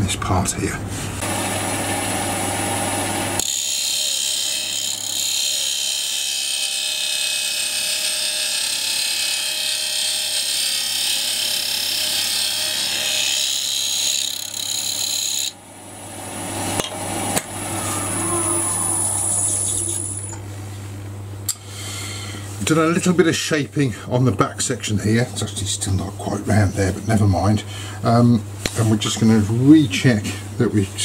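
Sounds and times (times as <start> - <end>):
lathe motor hum: 1.2 - 20.4.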